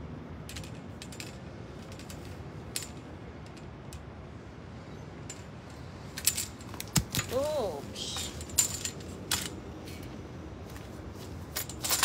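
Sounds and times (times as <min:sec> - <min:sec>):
pole clicking among branches: 0:05.3 - 0:10.2.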